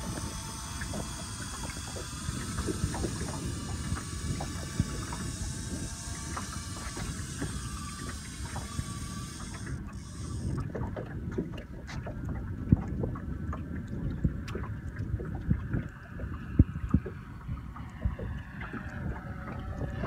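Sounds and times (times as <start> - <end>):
drone propeller whine: 0.0 - 10.9, 15.9 - 20.0
wind buffeting microphone: 0.0 - 20.0.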